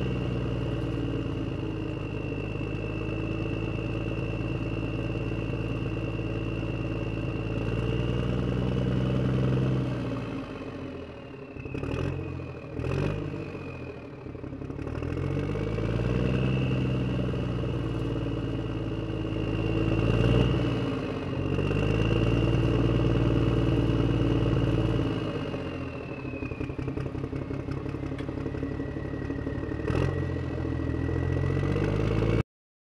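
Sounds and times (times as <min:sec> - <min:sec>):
tractor engine revving: 0:00.0 - 0:11.0, 0:11.6 - 0:32.4
steady high whine: 0:25.9 - 0:31.7.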